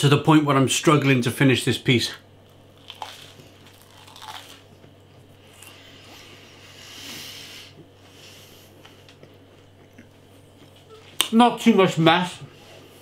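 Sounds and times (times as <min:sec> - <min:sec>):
person chewing toast: 0:02.6 - 0:06.4, 0:08.7 - 0:10.9.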